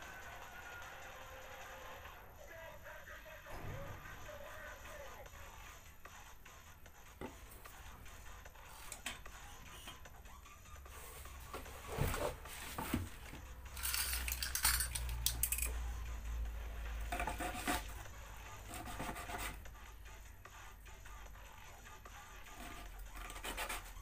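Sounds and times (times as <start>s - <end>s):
small metal parts clicking: 13.7s - 15.8s
scratchy rubbing: 17.0s - 19.8s, 22.4s - 24.0s.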